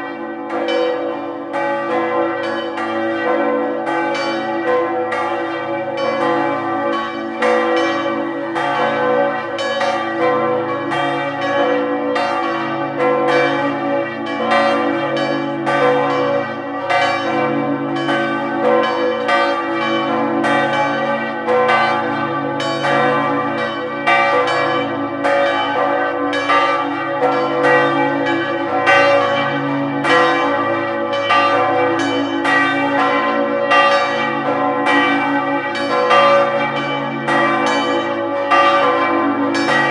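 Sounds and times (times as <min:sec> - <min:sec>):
church bells ringing: 0:00.0 - 0:39.9.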